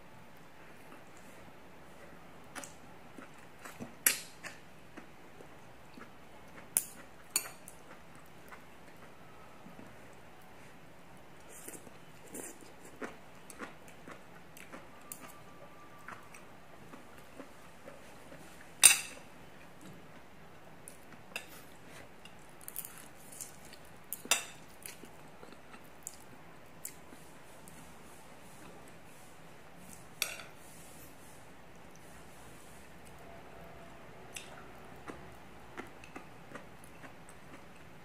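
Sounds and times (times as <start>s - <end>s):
chewing: 11.4s - 18.8s, 19.6s - 27.8s, 34.3s - 37.9s.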